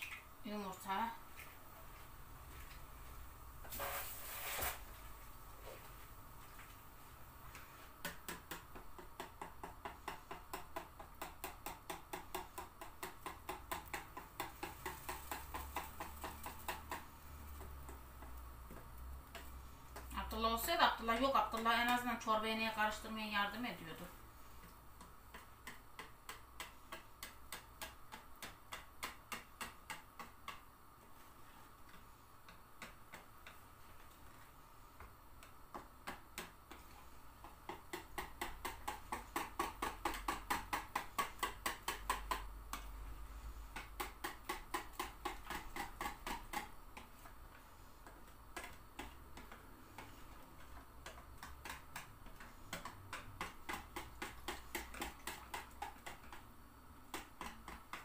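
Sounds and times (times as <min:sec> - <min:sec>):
wire whisk beating batter: 0:07.5 - 0:22.2, 0:23.8 - 0:30.7, 0:35.0 - 0:58.0.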